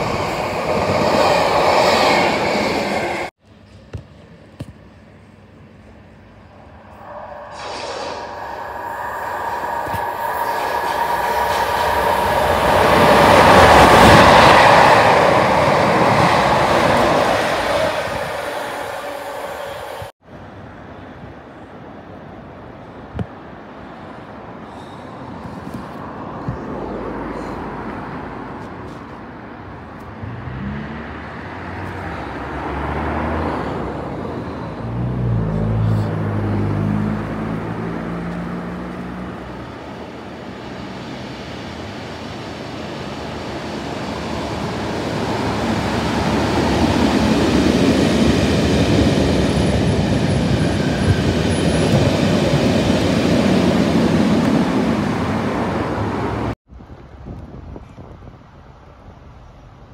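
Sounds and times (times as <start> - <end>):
train rumbling past: 0.0 - 3.4, 5.6 - 56.6
locomotive engine drone: 0.0 - 20.5.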